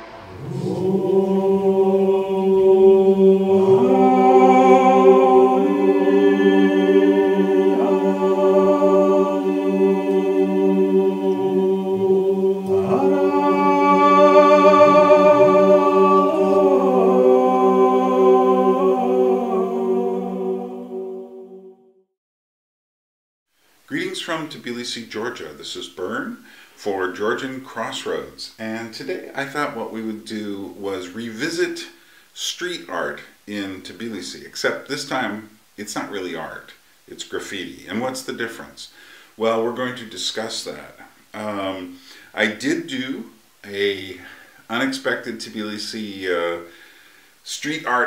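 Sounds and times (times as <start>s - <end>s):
low drone note: 0.0s - 18.5s
choir singing unaccompanied: 0.0s - 21.9s.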